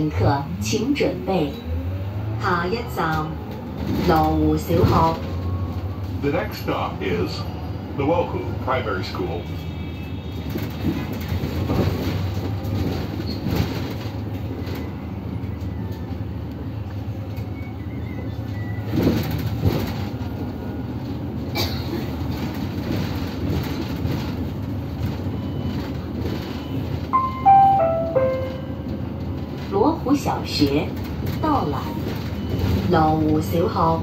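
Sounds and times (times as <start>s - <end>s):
bus rumbling: 0.0s - 34.0s
bus fittings rattling and knocking: 10.5s - 14.5s, 21.5s - 25.3s
falling tones: 27.2s - 28.9s.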